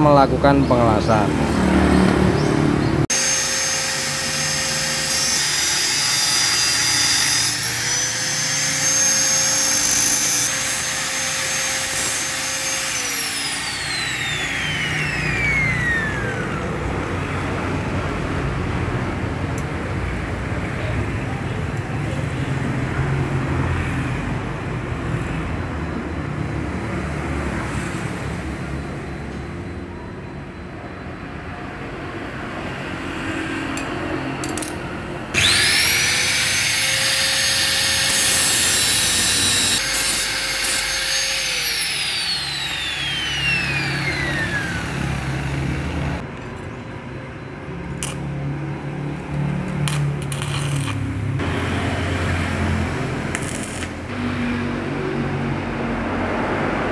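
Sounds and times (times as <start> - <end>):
angle grinder grinding metal: 3.1 - 16.8, 33.8 - 46.3, 49.8 - 54.1.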